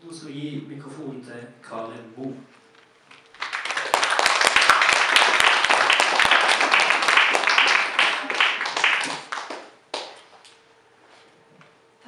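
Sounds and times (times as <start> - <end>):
audience applauding: 3.3 - 10.3.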